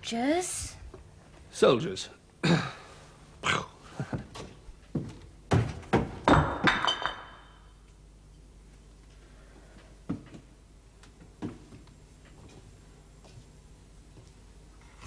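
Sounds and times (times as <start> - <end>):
thuds and knocks: 5.0 - 6.9.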